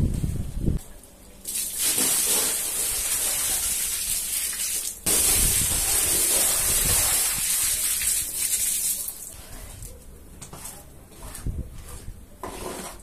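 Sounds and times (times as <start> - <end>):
water gushing onto rug: 1.5 - 9.4.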